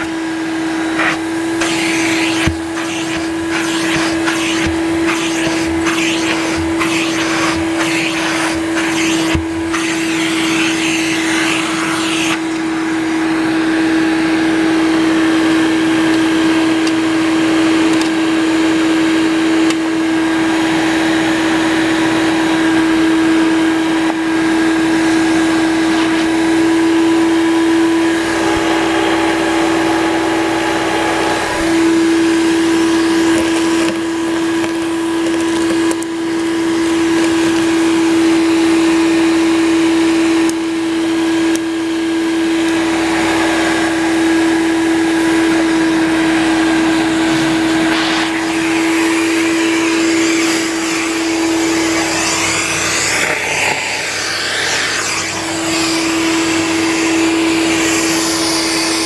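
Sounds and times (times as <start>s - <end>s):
sawdust crackling in vacuum hose: 0.0s - 13.4s, 46.7s - 59.0s
vacuum cleaner motor whine: 0.0s - 59.0s.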